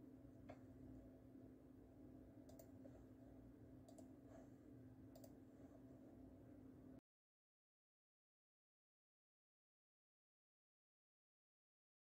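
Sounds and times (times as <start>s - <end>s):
steady low hum: 0.0s - 7.0s
soft clicks: 2.4s - 2.9s, 3.8s - 4.2s, 5.1s - 5.4s.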